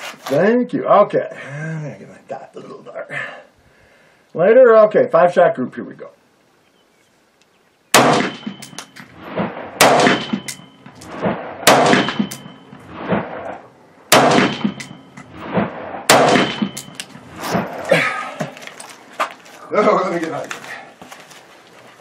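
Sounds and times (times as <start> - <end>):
rifle shots with echo: 7.9 - 17.7.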